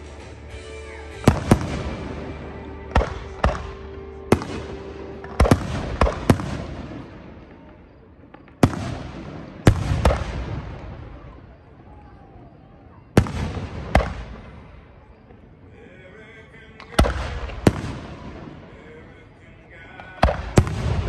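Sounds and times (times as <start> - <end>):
firework shells bursting: 1.1 - 11.0.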